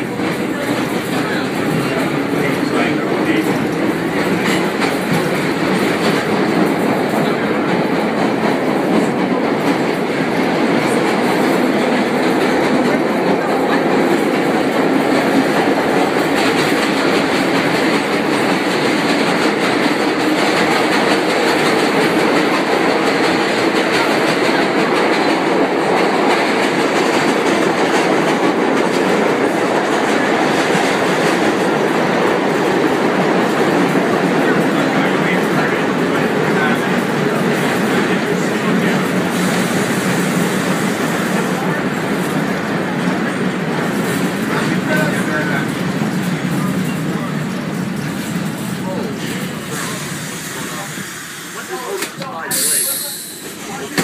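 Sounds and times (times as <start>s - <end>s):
clickety-clack of rail joints: 0.0s - 51.0s, 51.7s - 54.0s
subway car wheels on rails: 0.0s - 54.0s.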